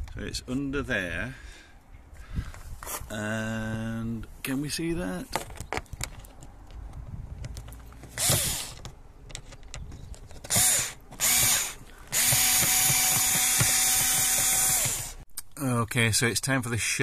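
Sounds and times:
cordless drill motor whirring: 0:08.2 - 0:08.8, 0:10.5 - 0:15.2.

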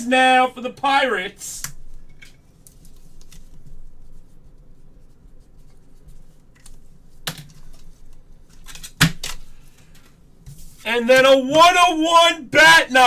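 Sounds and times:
cards handling noise: 0:01.6 - 0:04.0, 0:05.7 - 0:10.8.

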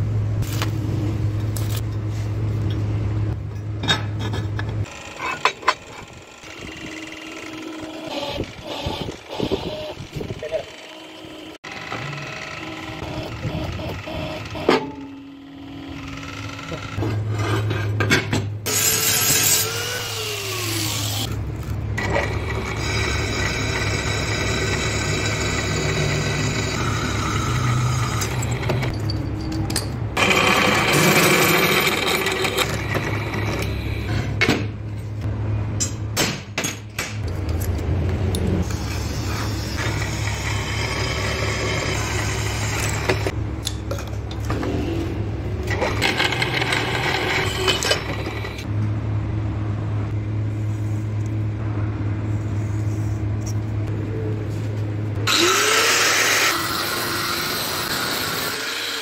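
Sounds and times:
drill press motor hum: 0:04.8 - 0:17.0, 0:22.0 - 0:28.9, 0:55.2 - 0:59.0
drill grinding through steel: 0:18.7 - 0:21.3, 0:22.0 - 0:28.6, 0:39.4 - 0:43.3, 0:55.3 - 0:59.0.

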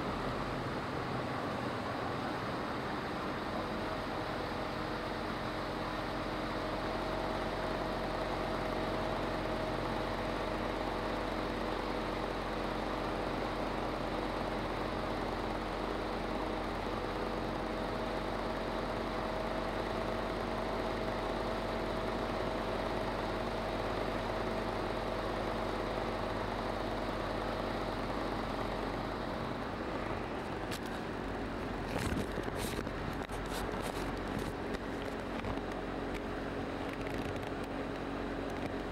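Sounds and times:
boat motor humming: 0:29.2 - 0:38.9.

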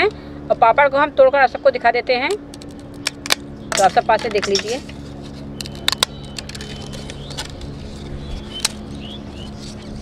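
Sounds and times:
steady low hum: 0:00.0 - 0:10.0
fried papads crackling and snapping: 0:05.1 - 0:10.0.

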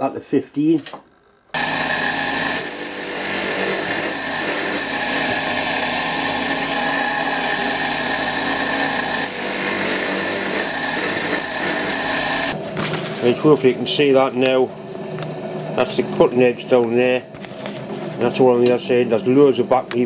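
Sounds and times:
grinding wheel whining: 0:01.4 - 0:18.4
drill bit grinding hiss: 0:01.6 - 0:12.6.

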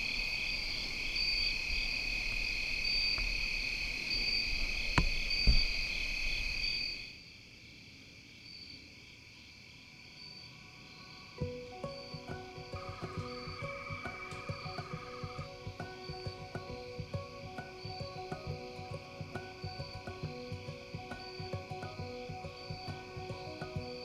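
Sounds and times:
crickets and insects trilling: 0:00.0 - 0:24.0
music: 0:11.1 - 0:24.0.

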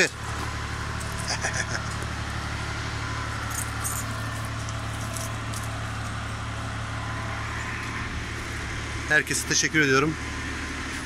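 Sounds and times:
low machine hum: 0:00.0 - 0:11.0
light jingles: 0:03.4 - 0:06.2.

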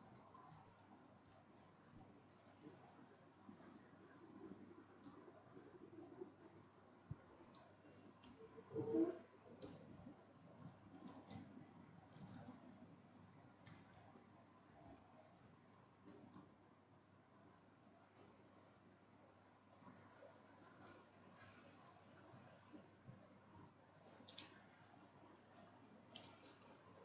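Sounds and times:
keyboard clicks: 0:10.6 - 0:12.6.

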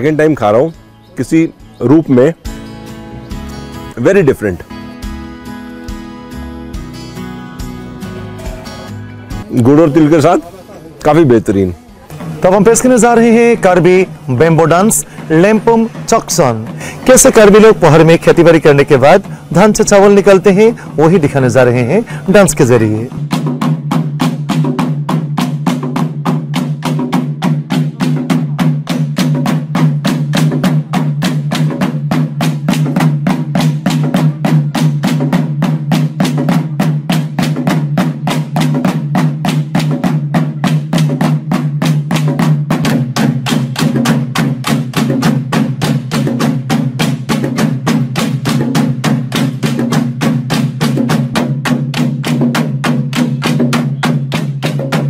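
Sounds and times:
bamboo poles clapping: 0:23.3 - 0:55.0.

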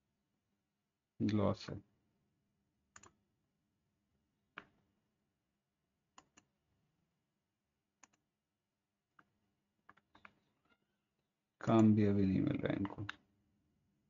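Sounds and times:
computer mouse clicking: 0:02.9 - 0:03.2, 0:06.2 - 0:06.5, 0:08.0 - 0:08.2.

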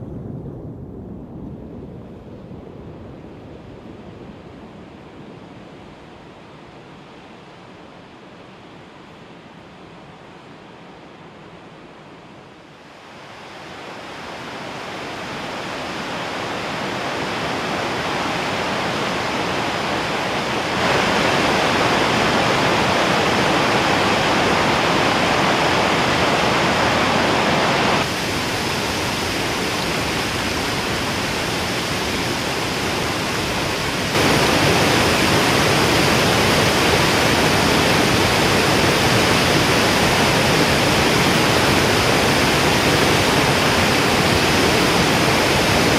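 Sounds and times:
river water rushing over rocks: 0:12.9 - 0:45.9.

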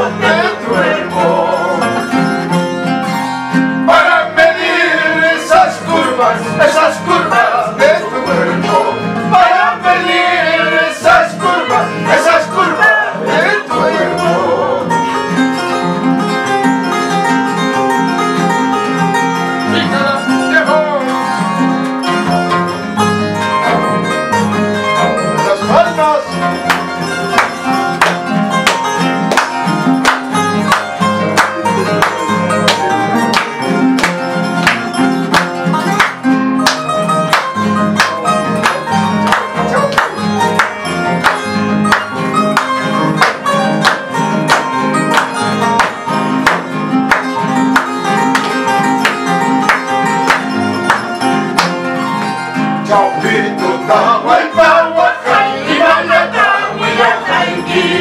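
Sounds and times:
people singing: 0:00.0 - 0:02.4, 0:03.8 - 0:15.1, 0:31.6 - 0:33.9, 0:52.8 - 0:58.0
harp and acoustic guitar: 0:00.0 - 0:58.0
hand clapping: 0:25.7 - 0:52.9.

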